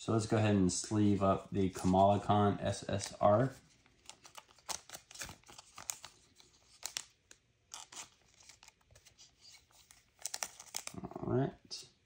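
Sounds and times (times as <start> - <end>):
plastic sleeve crinkling: 2.8 - 11.0.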